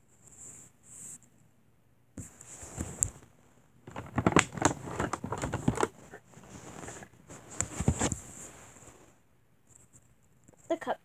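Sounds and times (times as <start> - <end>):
handling rustles on fabric: 2.2 - 9.2.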